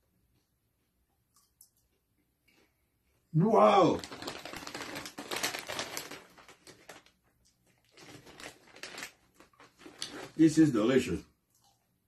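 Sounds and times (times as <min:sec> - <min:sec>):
plastic snack bag crinkling: 0:03.4 - 0:11.0.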